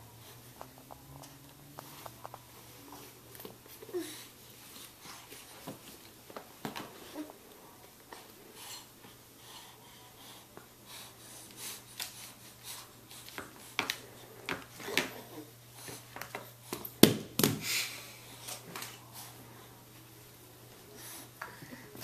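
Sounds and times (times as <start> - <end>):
baby breathy sounds: 3.8 - 4.4, 20.9 - 22.0.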